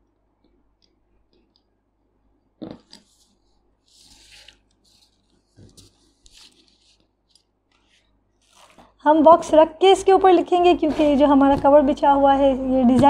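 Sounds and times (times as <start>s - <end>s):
paper rustling on table: 2.9s - 9.0s.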